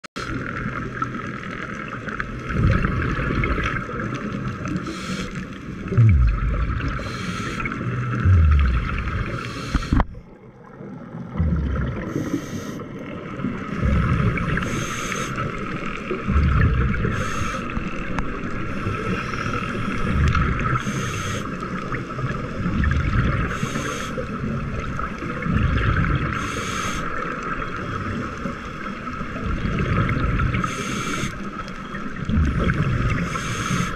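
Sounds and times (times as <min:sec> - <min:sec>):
exhaled air bubbling: 0:02.0 - 0:28.3, 0:29.0 - 0:33.9
regulator hiss underwater: 0:04.8 - 0:10.2, 0:11.5 - 0:15.9, 0:16.8 - 0:22.2, 0:23.3 - 0:24.4, 0:26.1 - 0:28.2, 0:30.4 - 0:31.6, 0:32.2 - 0:33.9.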